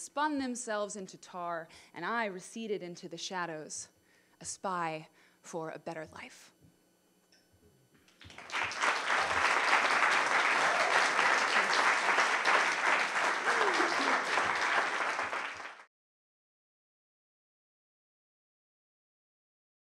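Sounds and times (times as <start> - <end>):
audience applauding: 8.1 - 15.9.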